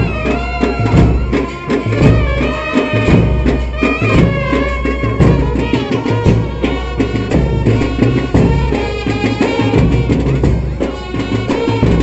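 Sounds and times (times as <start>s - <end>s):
instrumental folk music: 0.0s - 12.0s
steady drum beat: 0.0s - 12.0s.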